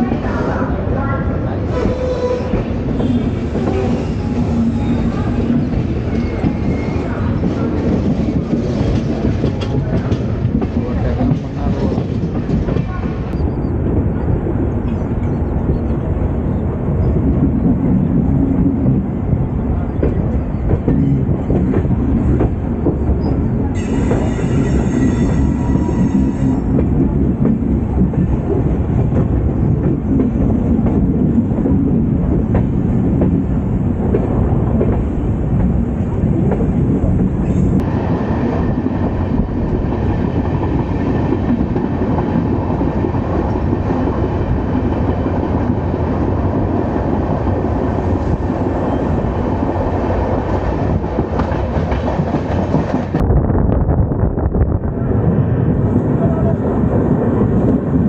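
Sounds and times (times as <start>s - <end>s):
train wheels rumbling on rails: 0.0s - 58.0s
clickety-clack of track: 5.5s - 13.5s, 19.8s - 48.8s, 49.8s - 53.2s.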